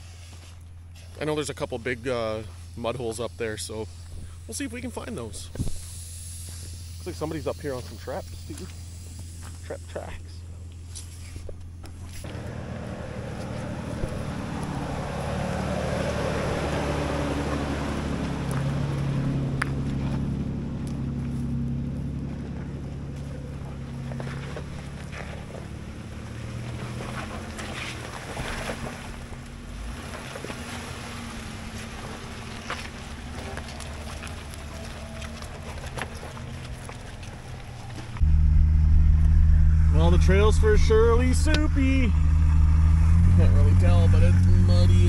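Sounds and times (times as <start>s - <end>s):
truck engine running: 0.0s - 45.0s
tyre and road noise: 0.0s - 45.0s
knocks from rough trail: 13.2s - 15.4s, 17.5s - 31.0s.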